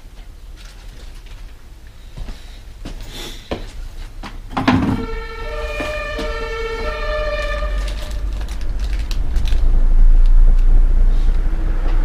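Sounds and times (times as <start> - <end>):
two-tone emergency siren: 4.8 - 8.4
low rumble: 5.0 - 12.0.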